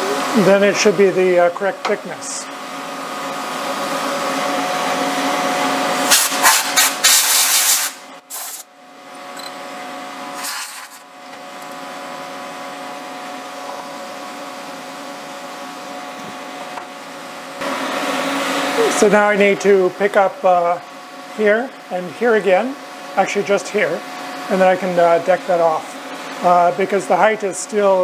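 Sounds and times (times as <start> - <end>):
milling machine hum: 0.0 - 6.1, 8.9 - 28.0
compressed air hissing: 6.0 - 8.6.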